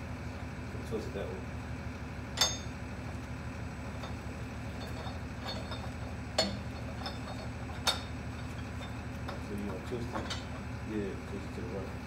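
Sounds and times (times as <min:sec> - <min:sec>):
low machinery hum: 0:00.0 - 0:12.0.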